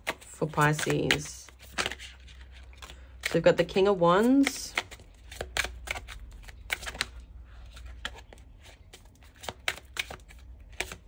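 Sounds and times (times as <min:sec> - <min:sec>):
cards being shuffled: 0:00.0 - 0:11.0.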